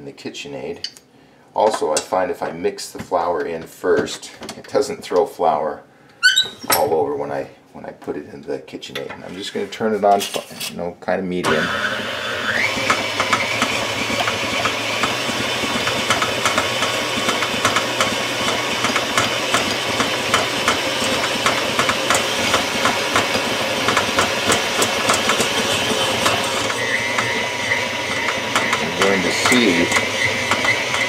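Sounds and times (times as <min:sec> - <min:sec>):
mixer beater knocking: 0:11.5 - 0:31.0
stand mixer motor whining: 0:11.5 - 0:31.0.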